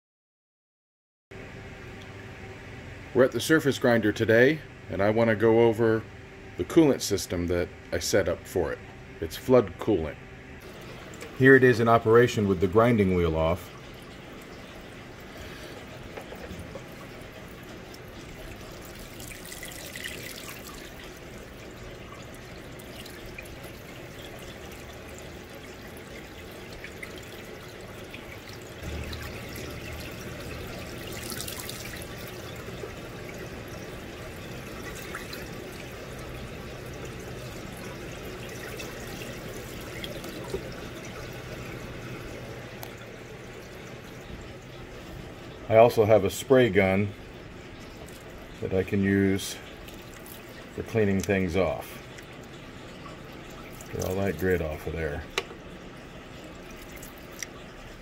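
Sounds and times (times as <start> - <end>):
coolant splashing and trickling: 10.6 - 58.0
low hum: 20.2 - 46.2.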